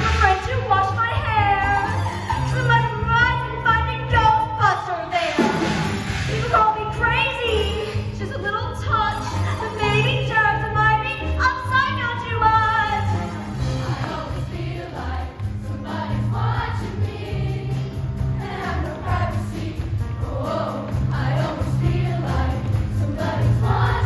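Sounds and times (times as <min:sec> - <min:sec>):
choir singing: 0:13.6 - 0:24.0.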